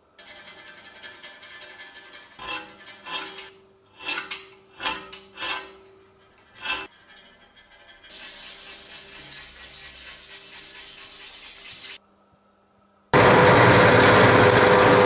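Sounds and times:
abrasive scraping metal tube: 0.2s - 12.0s.

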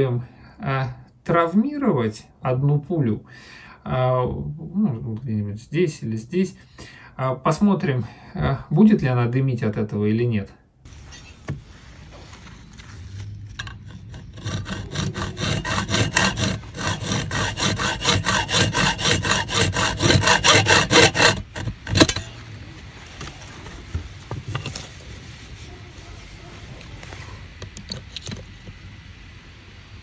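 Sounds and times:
saw blade sawing metal: 13.6s - 22.4s.

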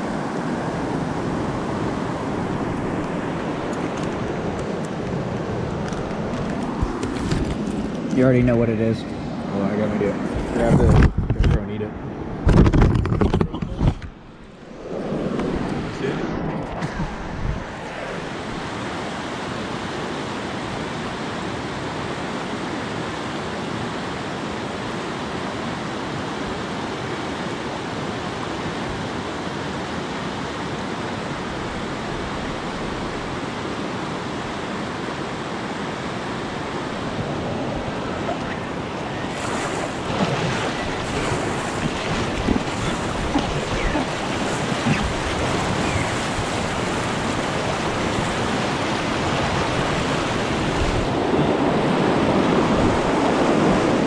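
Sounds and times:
river whitewater rushing: 17.6s - 54.0s
sharp water splashes: 39.3s - 48.6s.

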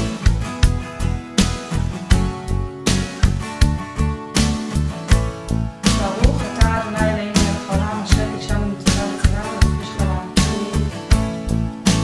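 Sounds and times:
plucked guitar over beat: 0.0s - 12.0s.

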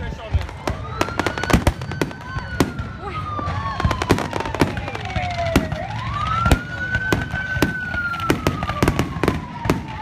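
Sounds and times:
fireworks bangs and crackles: 0.0s - 10.0s
siren wailing: 0.1s - 10.0s.

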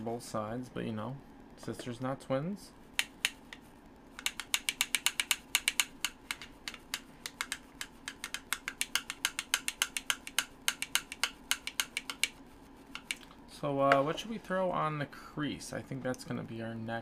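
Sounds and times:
faint steady hum: 0.0s - 17.0s
keyboard typing clicks: 4.2s - 12.4s.

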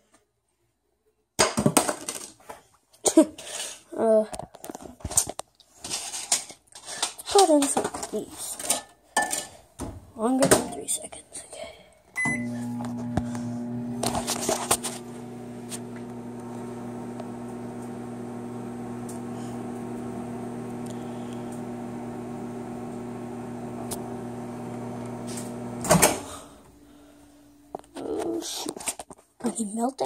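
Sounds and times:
microwave keypad beep: 12.2s - 12.6s
microwave humming: 12.2s - 27.8s.

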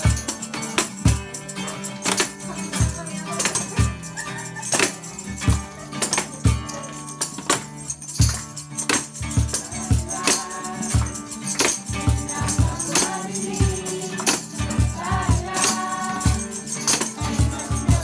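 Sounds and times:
strummed acoustic guitar: 0.0s - 18.0s
tambourines jingling: 0.0s - 18.0s
cajon thumps: 7.3s - 18.0s
group singing: 9.4s - 18.0s.

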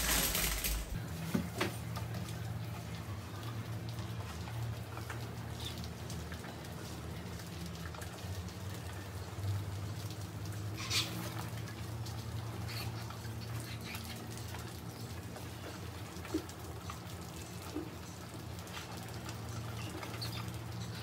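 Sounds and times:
mice scuffling and scratching: 0.0s - 2.3s.

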